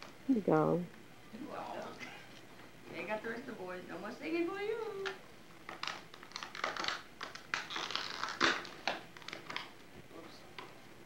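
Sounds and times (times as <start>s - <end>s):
wrapping paper crinkling: 5.7s - 9.8s.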